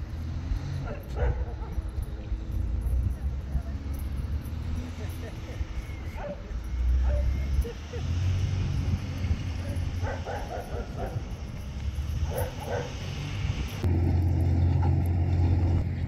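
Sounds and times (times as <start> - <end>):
wind rumble on microphone: 0.0 - 16.0
dog barking: 0.8 - 1.9, 6.1 - 7.7, 9.6 - 11.4, 12.2 - 13.0.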